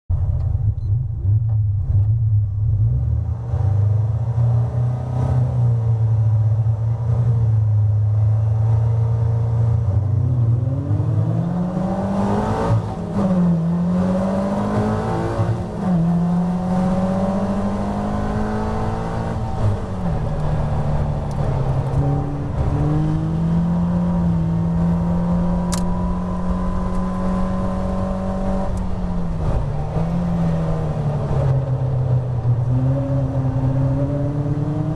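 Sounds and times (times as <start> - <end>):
other cars' engines: 0.1 - 34.9
race car engine revving: 8.2 - 34.9
gear upshifts: 10.7 - 34.9.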